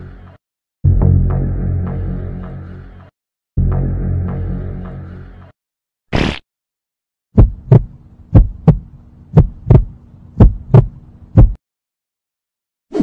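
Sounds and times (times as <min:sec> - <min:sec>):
heartbeat double thumps: 0:07.4 - 0:11.6
faint steady hum: 0:07.7 - 0:11.5.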